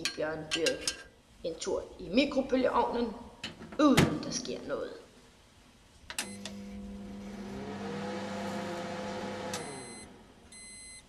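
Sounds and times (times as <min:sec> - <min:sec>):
microwave beep: 0:06.2 - 0:06.7, 0:09.5 - 0:11.0
microwave oven humming: 0:06.2 - 0:10.9.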